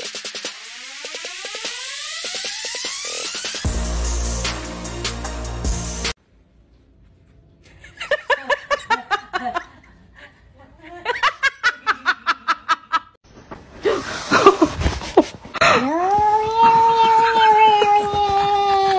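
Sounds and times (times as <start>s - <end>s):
person laughing hard: 13.8s - 16.0s.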